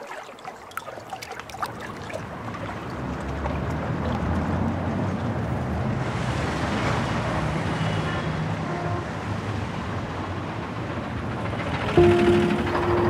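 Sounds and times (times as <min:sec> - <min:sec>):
faint brief tones: 0:11.9 - 0:13.0.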